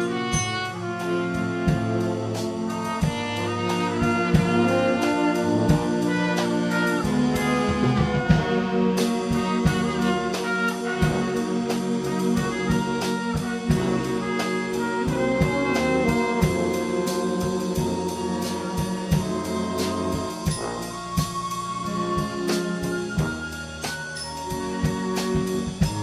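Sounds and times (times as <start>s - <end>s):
concert band playing: 0.0s - 26.0s
drum strikes: 5.6s - 26.0s.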